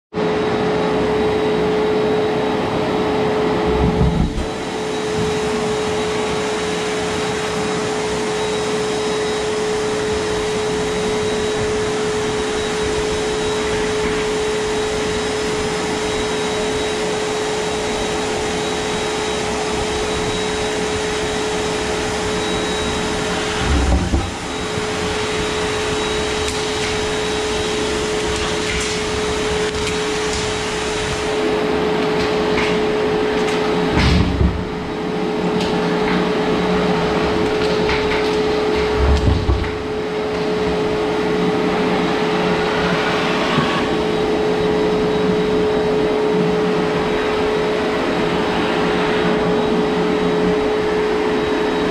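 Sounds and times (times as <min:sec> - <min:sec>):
vacuum cleaner running: 0:00.1 - 0:51.9
low thumps: 0:23.6 - 0:24.5.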